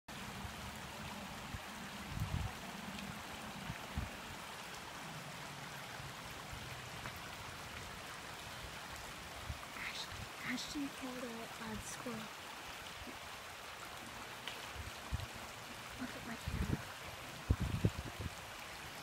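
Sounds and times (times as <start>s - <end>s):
creek running over rocks: 0.1s - 19.0s.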